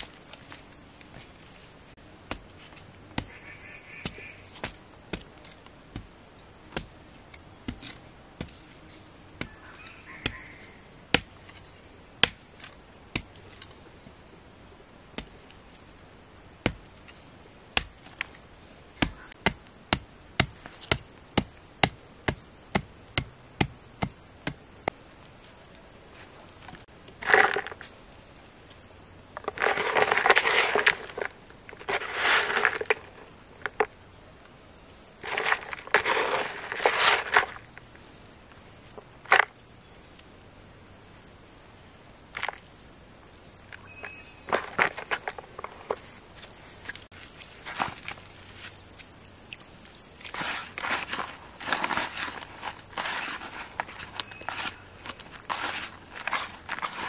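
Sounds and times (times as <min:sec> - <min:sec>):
rustling or scraping bursts: 0:29.4 - 0:33.3, 0:35.2 - 0:37.8, 0:50.2 - 0:57.0.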